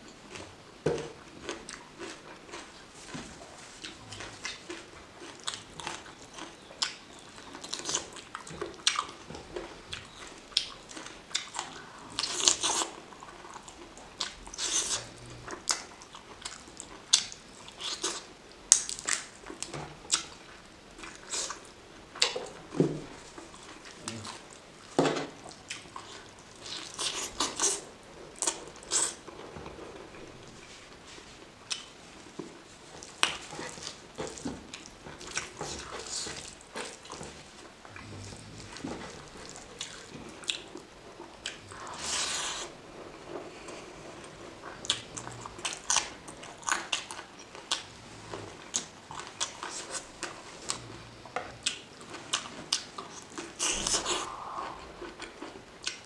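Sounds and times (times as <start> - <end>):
woman chewing food: 0.0 - 56.0.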